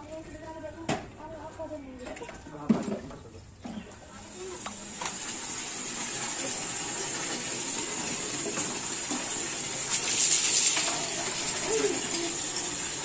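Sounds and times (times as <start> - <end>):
water poured and splashing: 4.3 - 13.0.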